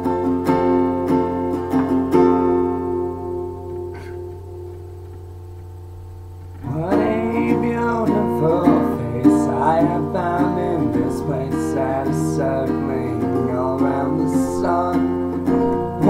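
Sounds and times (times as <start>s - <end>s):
guitar strumming chords: 0.0s - 16.0s
man singing: 6.6s - 16.0s.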